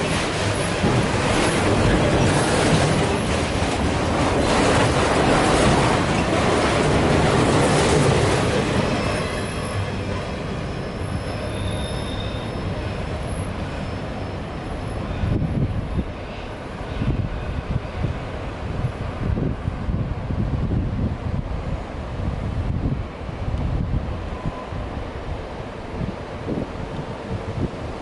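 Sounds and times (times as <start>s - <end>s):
train wheels rolling on rails: 0.0s - 28.0s
faint wheel squeal: 10.6s - 15.5s
wind buffeting microphone: 15.0s - 28.0s.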